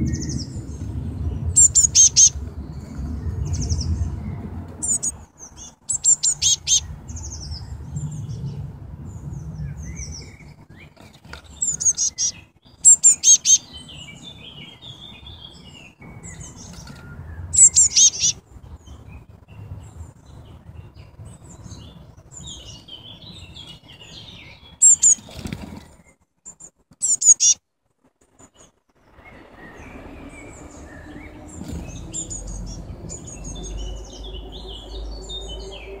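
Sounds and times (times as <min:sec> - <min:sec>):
fledglings calling: 0:00.0 - 0:03.9, 0:04.8 - 0:07.6, 0:10.1 - 0:18.4, 0:22.4 - 0:25.8, 0:27.0 - 0:27.6, 0:29.0 - 0:36.0
soft birdsong: 0:00.0 - 0:27.6, 0:28.2 - 0:36.0.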